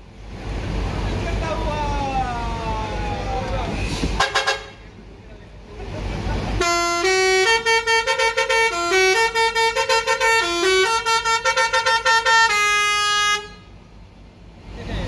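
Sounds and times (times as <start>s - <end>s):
bus horn playing a tune: 4.2s - 4.9s, 6.6s - 13.8s.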